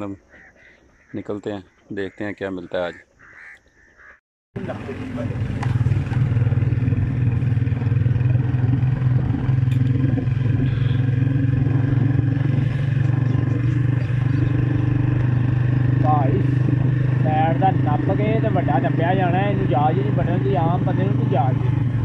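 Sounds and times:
road noise: 0:00.0 - 0:22.0
motorcycle engine droning: 0:04.6 - 0:22.0.

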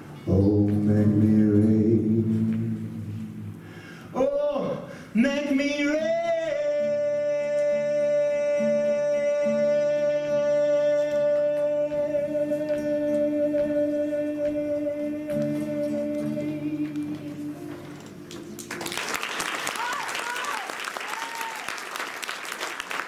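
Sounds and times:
man singing a long note: 0:00.2 - 0:03.5, 0:04.2 - 0:17.9
strummed acoustic guitar: 0:05.5 - 0:18.6.

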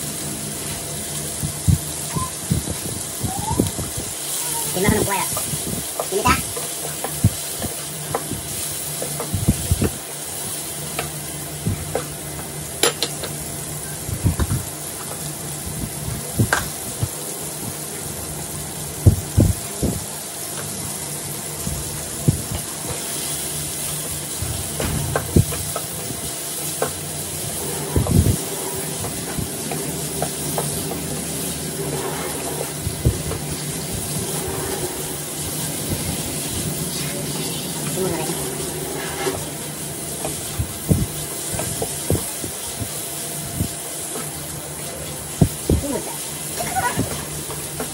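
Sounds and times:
meat sizzling in oil: 0:00.0 - 0:47.9
spatula scraping a frying pan: 0:27.3 - 0:35.5, 0:38.2 - 0:39.6.

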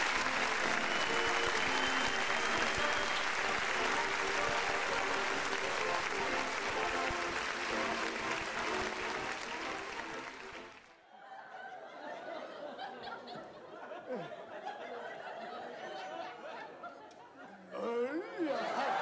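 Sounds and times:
audience applause: 0:00.0 - 0:11.0
music: 0:00.0 - 0:11.0
audience laughter: 0:11.1 - 0:19.0.

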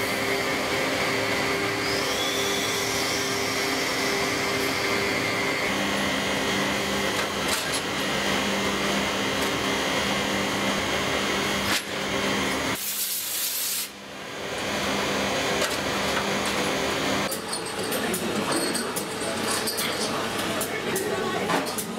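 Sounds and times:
factory machinery humming: 0:00.0 - 0:21.9.

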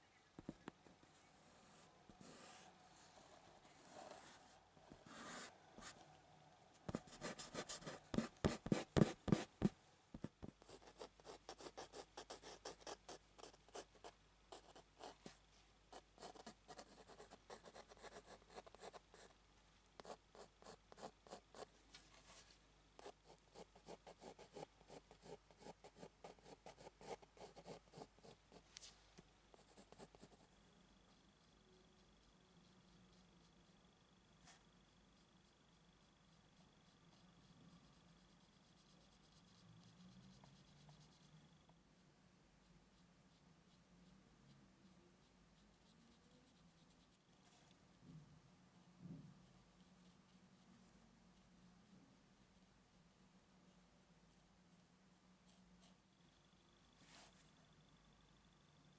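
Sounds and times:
pencil scratching on paper: 0:01.5 - 0:06.0, 0:06.9 - 0:09.7, 0:10.3 - 0:19.4, 0:20.0 - 0:22.4, 0:23.0 - 0:28.6, 0:29.5 - 0:30.5, 0:31.1 - 0:41.4, 0:42.6 - 0:47.7, 0:49.7 - 0:50.8.

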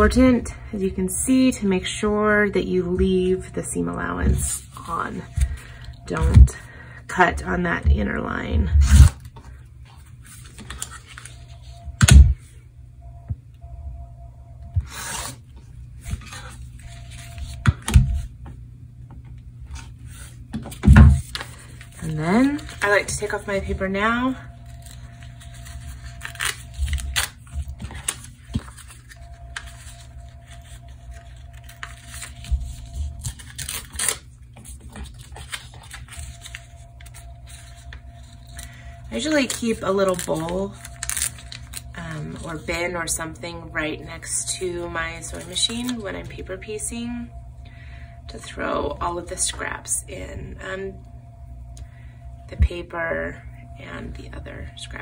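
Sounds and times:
paper tearing and crinkling: 0:10.2 - 0:11.5, 0:21.1 - 0:23.3, 0:24.6 - 0:42.4.

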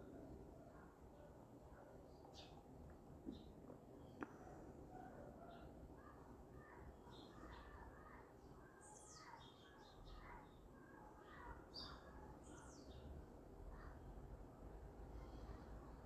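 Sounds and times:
bird chirping: 0:01.8 - 0:13.2.

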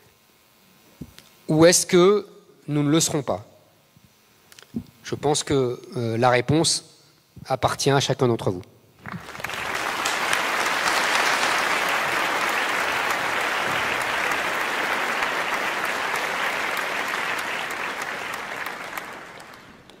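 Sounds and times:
audience applauding: 0:09.0 - 0:20.0.

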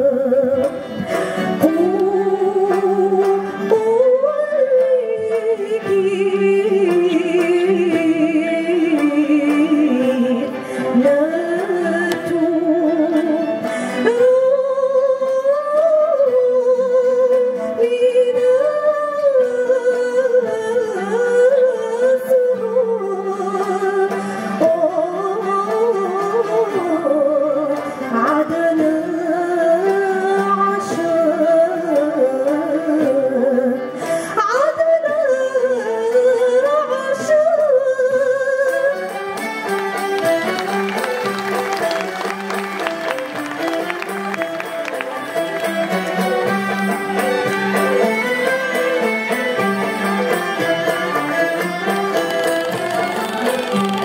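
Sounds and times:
woman singing with vibrato: 0:00.0 - 0:40.7
string ensemble: 0:00.0 - 0:54.0.

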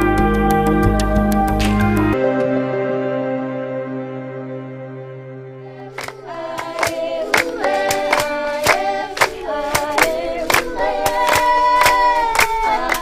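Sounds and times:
soft ambient music: 0:00.0 - 0:13.0
group singing a dance chant: 0:05.7 - 0:13.0
rhythmic hand claps: 0:06.0 - 0:13.0.

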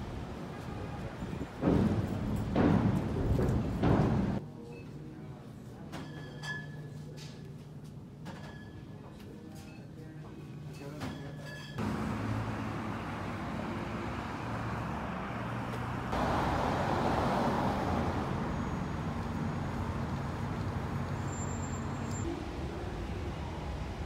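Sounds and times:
rumble of passing vehicles: 0:11.8 - 0:24.0.

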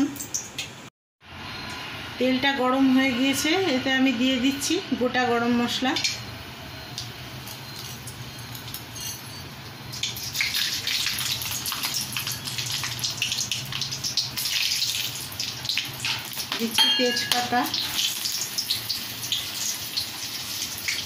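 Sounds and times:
spices crackling in hot oil: 0:00.0 - 0:00.8, 0:05.3 - 0:21.0.

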